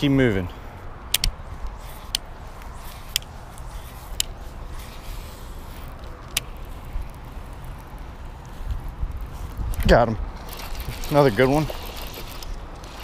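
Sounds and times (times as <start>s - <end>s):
wind rumble: 0.0s - 13.0s
sharp clicks: 1.0s - 4.4s, 5.8s - 8.0s
camera handling noise: 1.0s - 10.9s.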